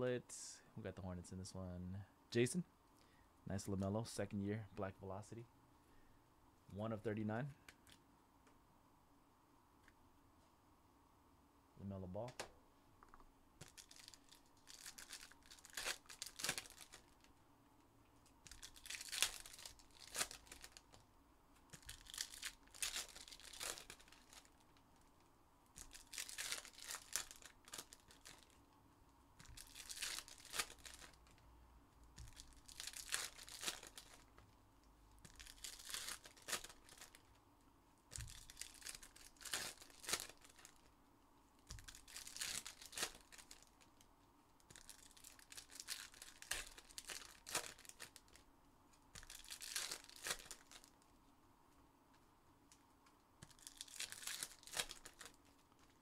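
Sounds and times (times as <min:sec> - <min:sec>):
foil packs tearing and crinkling: 0:13.6 - 0:17.2, 0:18.5 - 0:20.8, 0:21.8 - 0:24.6, 0:25.8 - 0:28.6, 0:29.4 - 0:31.4, 0:32.2 - 0:34.2, 0:35.3 - 0:37.2, 0:38.1 - 0:40.8, 0:41.8 - 0:43.8, 0:44.8 - 0:48.4, 0:49.2 - 0:51.0, 0:53.5 - 0:55.4.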